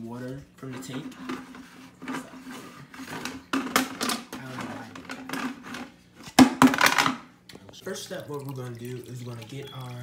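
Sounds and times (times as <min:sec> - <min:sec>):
plastic bucket knocking and rattling: 0:06.4 - 0:07.2.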